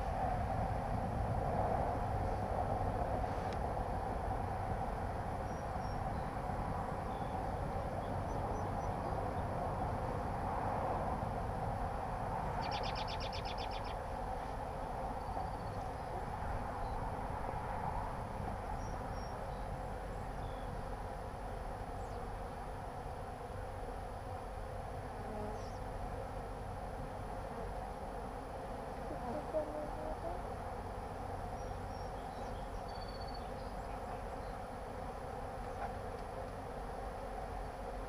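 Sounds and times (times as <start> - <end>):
bees buzzing: 18.2 - 38.0.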